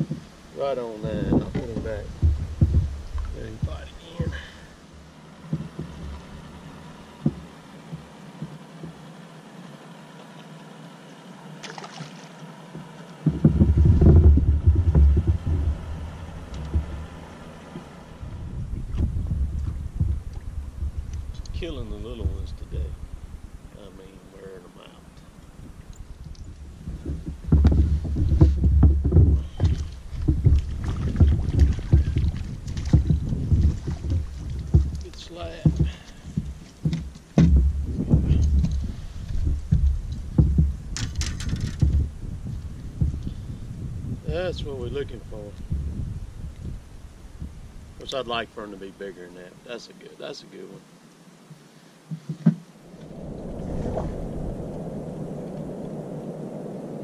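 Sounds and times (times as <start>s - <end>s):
wind buffeting microphone: 0.0s - 4.7s, 13.2s - 48.4s, 52.8s - 57.0s
heavy thumps on boat hull: 1.0s - 4.6s, 7.2s - 9.0s, 12.8s - 20.2s, 26.8s - 41.2s
light knocks: 7.2s - 9.0s, 52.1s - 52.7s
landing net clicks and rattles: 41.0s - 42.0s.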